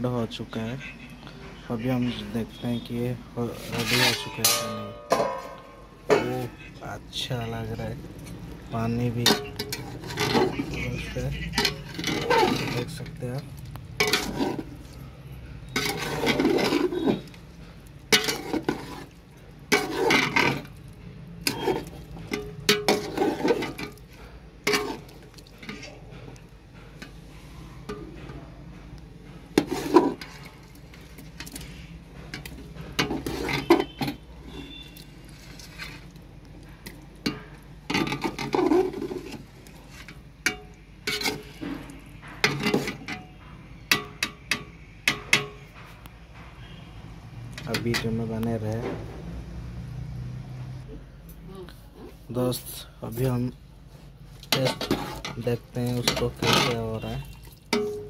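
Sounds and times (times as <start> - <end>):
spoon scraping metal pot: 3.4 - 6.6, 7.6 - 28.4, 29.3 - 45.6, 54.4 - 58.0.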